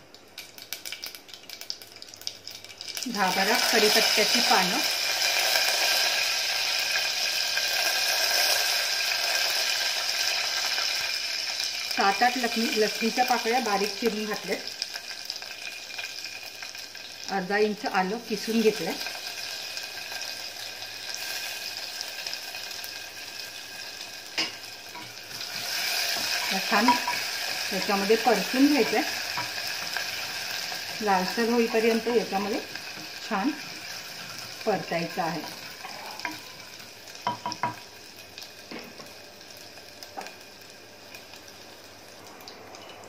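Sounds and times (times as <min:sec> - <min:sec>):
oil sizzling in pot: 0:00.0 - 0:43.0.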